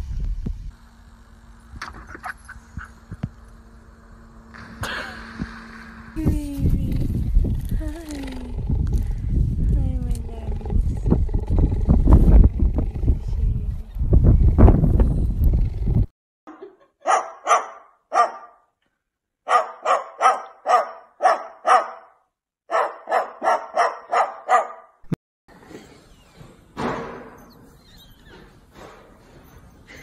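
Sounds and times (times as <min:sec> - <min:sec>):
cockatoo imitating dog barks: 0:22.7 - 0:24.8.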